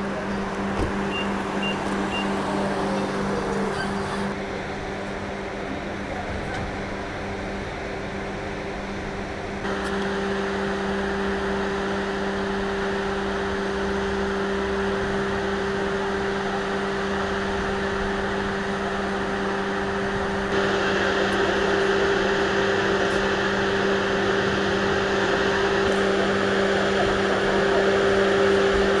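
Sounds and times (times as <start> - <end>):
steady machine hum: 1.3 - 4.4, 9.6 - 29.0.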